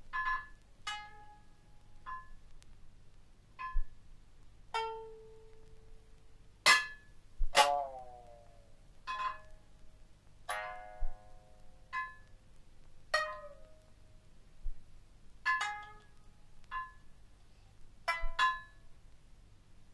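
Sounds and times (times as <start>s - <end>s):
plucked lute notes: 0.0s - 2.6s, 3.5s - 4.0s, 4.7s - 12.5s, 13.1s - 14.8s, 15.4s - 17.2s, 18.0s - 19.0s
frying pan strikes: 6.7s - 8.0s.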